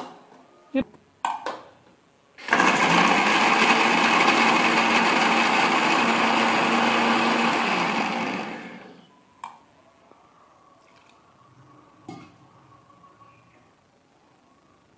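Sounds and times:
mixer grinder running: 2.4 - 9.0.

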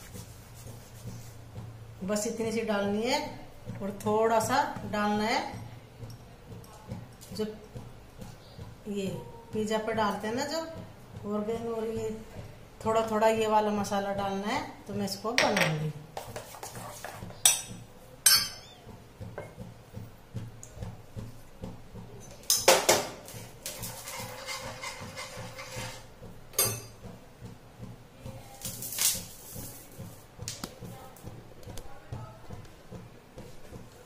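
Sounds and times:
utensils clinking on bowl and pan: 15.4 - 18.8, 22.2 - 27.0.

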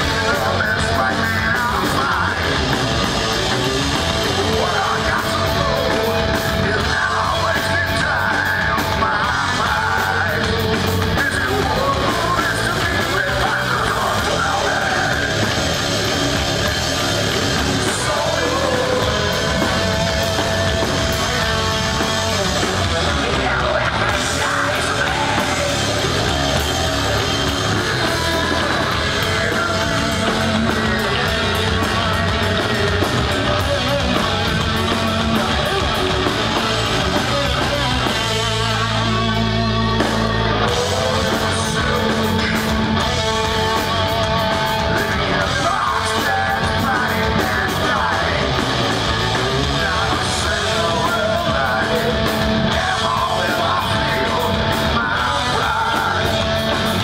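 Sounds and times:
heavy metal band playing live: 0.0 - 57.0
person shouting and singing: 0.0 - 57.0.

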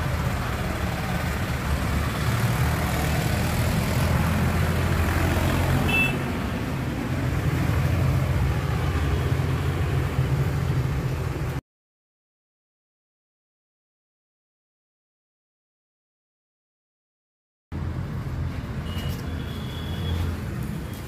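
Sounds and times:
low traffic rumble: 0.0 - 11.6, 17.7 - 21.0.

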